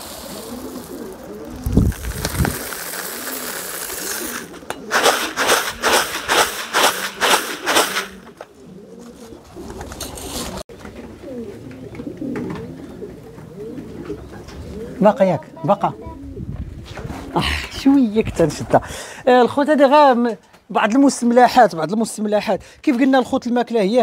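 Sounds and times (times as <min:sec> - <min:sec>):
sharp noisy strokes: 0:00.0 - 0:08.4
pigeons cooing: 0:00.0 - 0:17.8.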